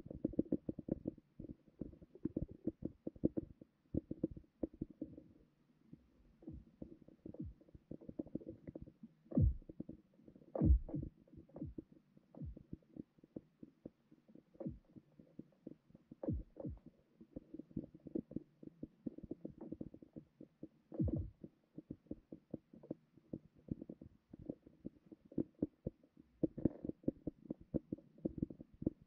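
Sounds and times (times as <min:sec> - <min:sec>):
low thuds dropping in pitch: 0:09.4 - 0:09.7, 0:10.6 - 0:11.1.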